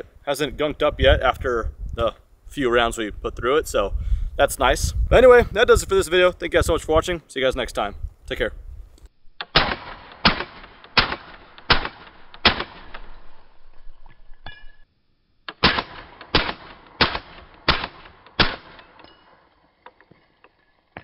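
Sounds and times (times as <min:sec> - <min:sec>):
suppressed gunshots: 0:09.4 - 0:13.4, 0:15.5 - 0:19.0.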